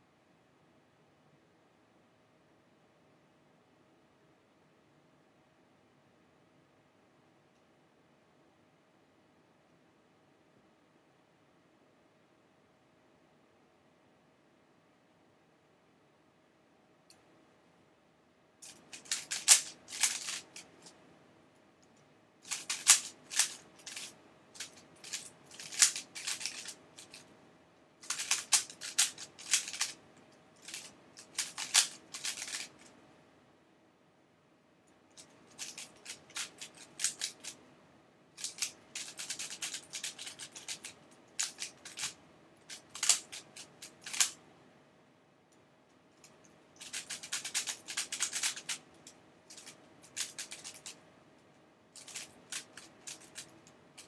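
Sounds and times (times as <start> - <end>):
faint steady hum: 0.0 - 54.0
plastic puzzle cube clicking: 18.6 - 20.9, 22.4 - 27.2, 28.0 - 30.0, 30.6 - 32.9, 35.2 - 37.6, 38.4 - 44.4, 46.8 - 51.0, 52.0 - 54.0.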